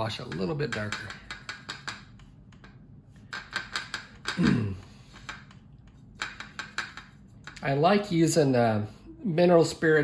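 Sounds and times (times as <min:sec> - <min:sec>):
paintbrush tapping metal palette: 0:00.0 - 0:04.4, 0:05.1 - 0:07.8.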